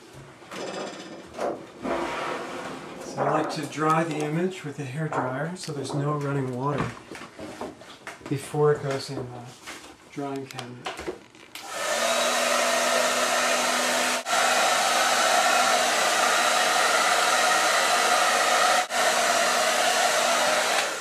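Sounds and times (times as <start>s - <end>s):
hairdryer blowing: 11.6s - 21.0s.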